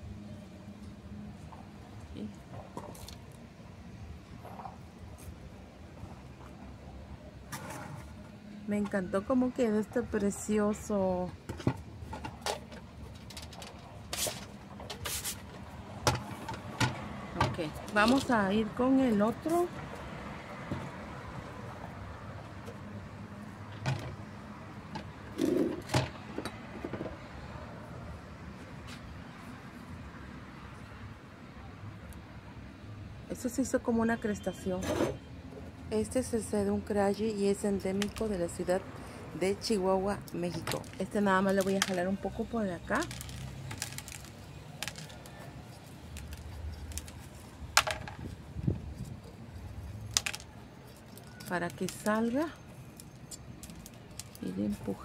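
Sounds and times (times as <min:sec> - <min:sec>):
stick scraping soil in pot: 0:14.0 - 0:15.5.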